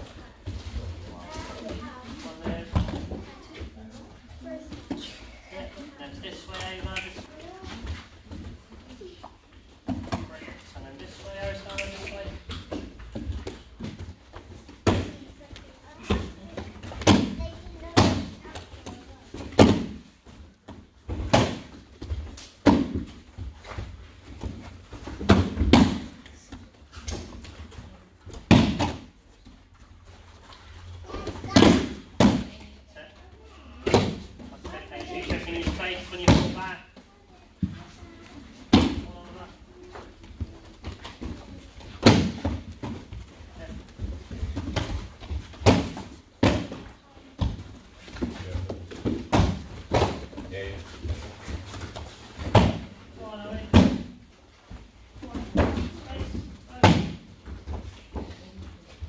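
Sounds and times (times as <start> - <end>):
bodies thudding on foam mats: 28.3 - 29.2, 40.4 - 50.4, 51.0 - 54.2.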